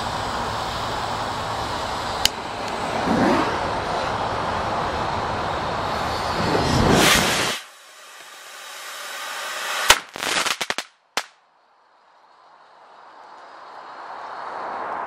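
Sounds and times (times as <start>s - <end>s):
steady rushing noise: 0.0s - 10.1s
firework hissing: 0.0s - 11.3s
crackling pops: 9.8s - 11.4s.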